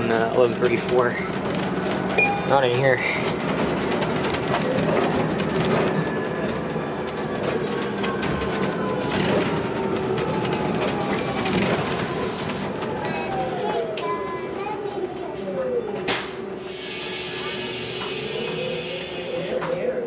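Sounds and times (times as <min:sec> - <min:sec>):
bus engine and road noise: 0:00.0 - 0:16.8.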